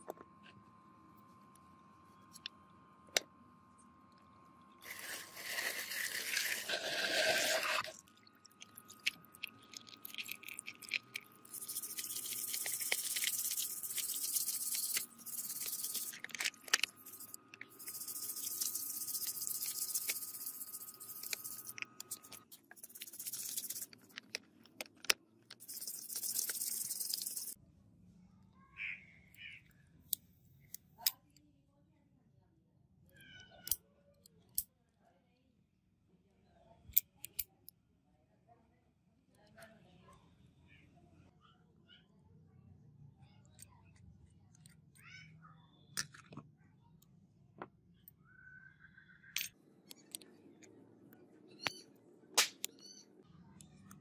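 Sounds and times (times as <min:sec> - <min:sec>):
faint steady high hum: 0:00.0 - 0:24.4.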